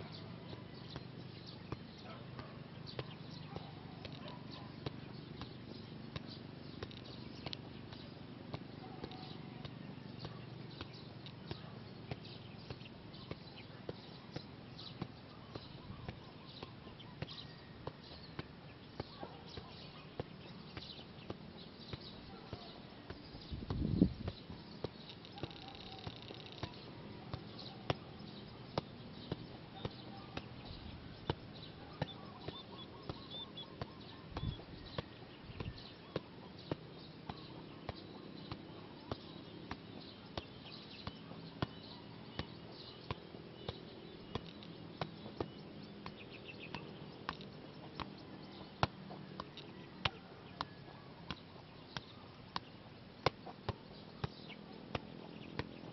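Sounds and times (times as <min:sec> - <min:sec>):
faint bird chirping: 0:00.0 - 0:55.9
football taps: 0:00.4 - 0:55.9.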